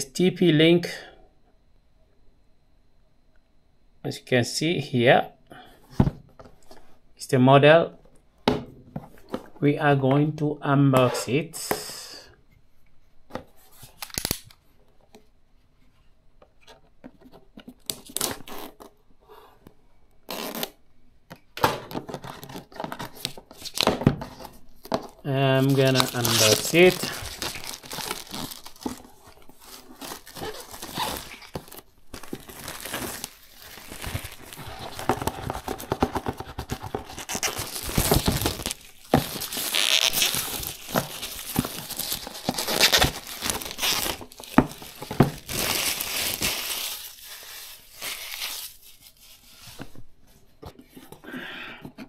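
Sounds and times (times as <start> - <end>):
plastic wrap crinkling and tearing: 13.8 - 14.6, 17.8 - 18.9, 22.2 - 49.8.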